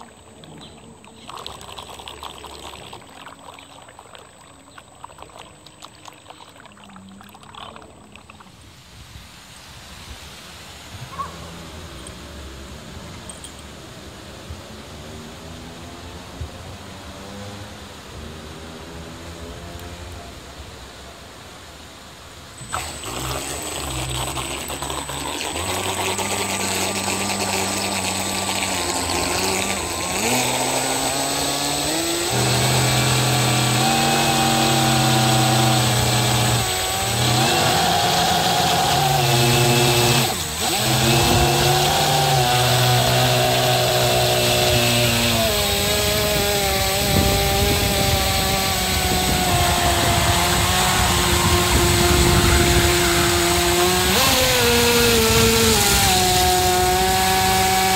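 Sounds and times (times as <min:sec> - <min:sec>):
model boat motor running: 0:00.0 - 0:08.6, 0:22.6 - 0:57.9
water hissing past hull: 0:22.6 - 0:57.9.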